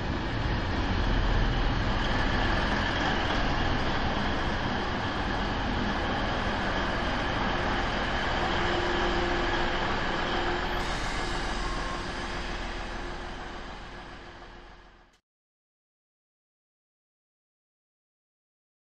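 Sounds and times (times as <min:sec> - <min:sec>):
train running past: 0:00.0 - 0:15.1.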